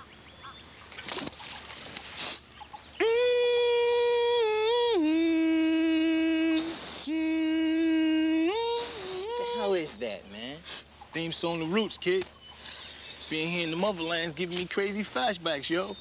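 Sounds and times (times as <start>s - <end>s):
sharp intake of breath: 2.1s - 2.5s, 6.6s - 7.1s, 10.6s - 10.9s, 12.5s - 13.2s
person singing wordless tune: 3.0s - 10.0s.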